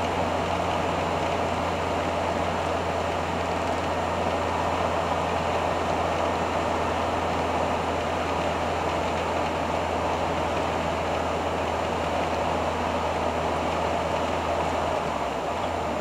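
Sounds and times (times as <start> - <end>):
motorhome engine drone: 0.0 - 16.0
road and wind noise: 0.0 - 16.0.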